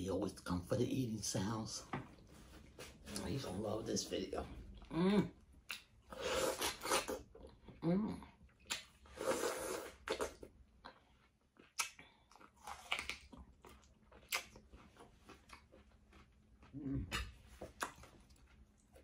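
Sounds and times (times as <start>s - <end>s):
crisp watermelon bites: 11.6s - 19.0s.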